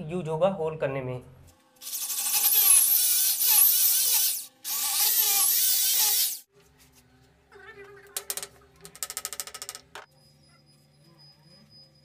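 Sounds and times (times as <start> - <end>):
electric drill boring into tile: 1.8 - 6.4.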